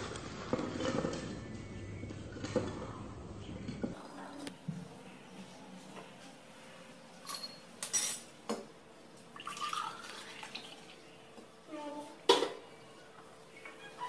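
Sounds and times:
milk pouring into glass: 0:09.4 - 0:11.0.

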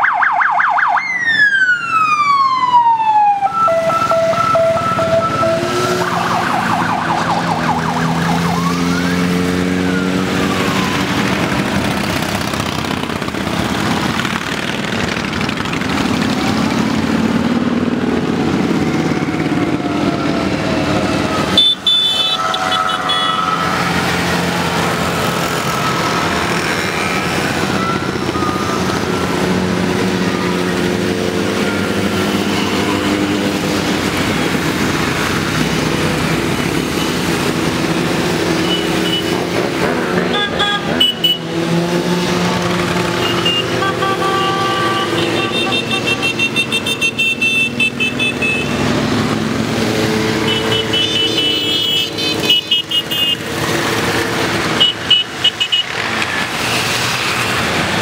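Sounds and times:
siren wailing: 0:00.0 - 0:12.1, 0:18.6 - 0:39.3
motorcycles riding past: 0:02.0 - 0:58.0.

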